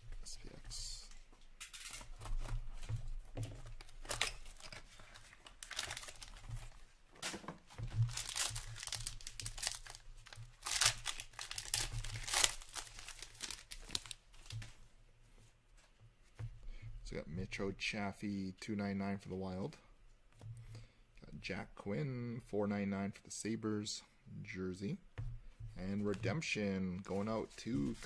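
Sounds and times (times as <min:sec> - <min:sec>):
plastic wrap crinkling and tearing: 0:03.7 - 0:14.7
knife slitting plastic wrap: 0:08.1 - 0:14.2.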